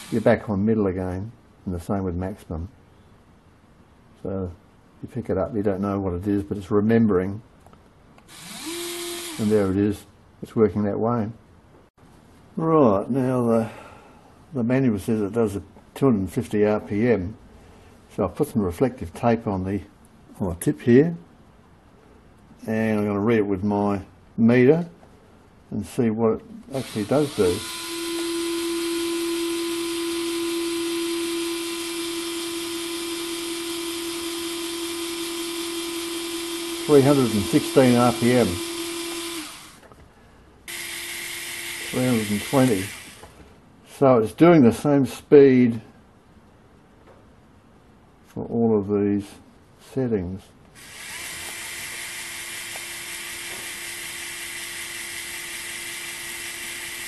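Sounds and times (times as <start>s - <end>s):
electric screwdriver motor whine: 0.0s - 0.3s, 8.3s - 9.6s, 26.8s - 39.9s, 40.7s - 43.4s, 50.8s - 57.0s.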